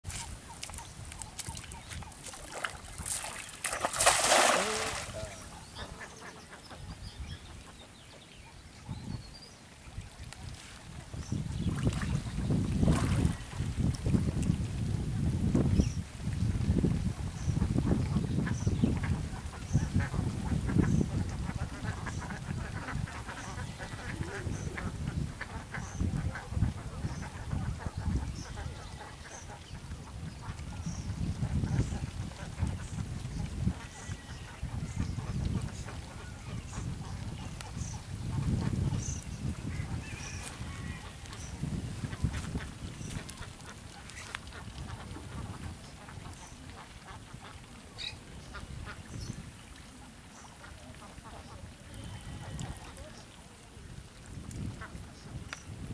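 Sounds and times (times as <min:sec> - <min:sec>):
ducks quacking: 0:04.4 - 0:07.0, 0:18.6 - 0:29.8.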